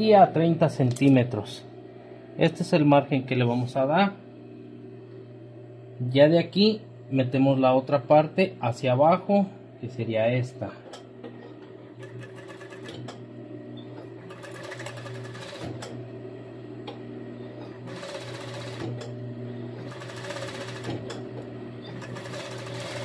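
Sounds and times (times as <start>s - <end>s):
sewing machine sewing: 11.4s - 13.2s, 14.0s - 16.0s, 17.6s - 23.0s.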